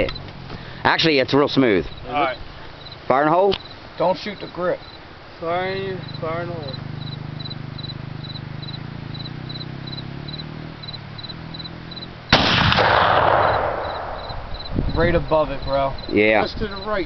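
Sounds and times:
insect chirping: 0:00.0 - 0:17.0
gunshot booming: 0:12.3 - 0:14.8.

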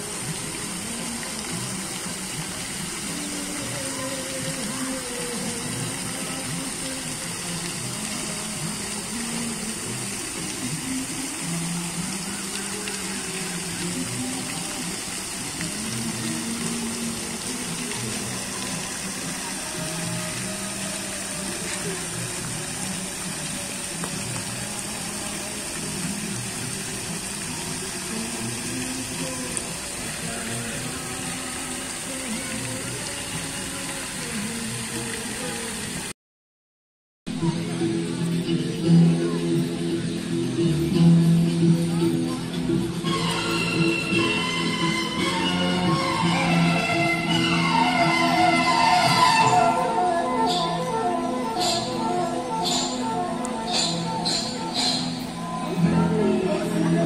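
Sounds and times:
fountain water splashing: 0:00.0 - 0:36.1, 0:37.4 - 0:57.0.

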